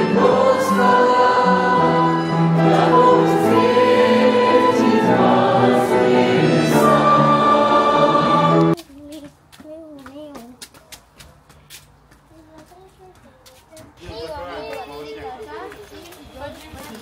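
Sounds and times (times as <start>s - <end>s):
choir singing a hymn: 0.0s - 8.8s
congregation singing along: 0.0s - 8.8s.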